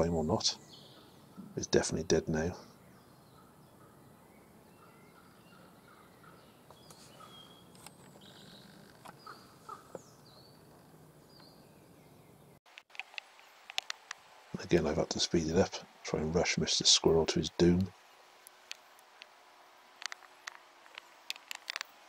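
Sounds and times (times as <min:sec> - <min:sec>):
small birds chirping: 0:00.0 - 0:12.6.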